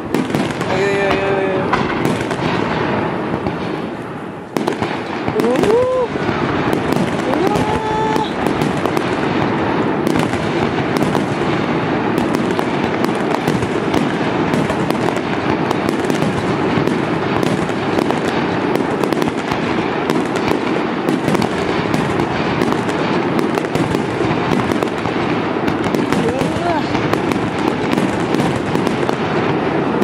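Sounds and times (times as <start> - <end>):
fireworks booming and cracking: 0.0 - 30.0.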